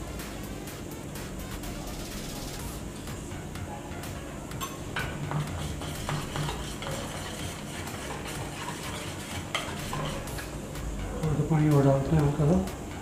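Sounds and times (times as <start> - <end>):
wire whisk scraping metal bowl: 5.3 - 10.6.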